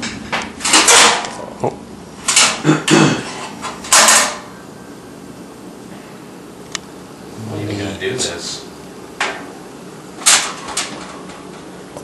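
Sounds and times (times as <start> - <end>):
metal grill parts clattering: 0.6 - 1.4, 3.3 - 4.5.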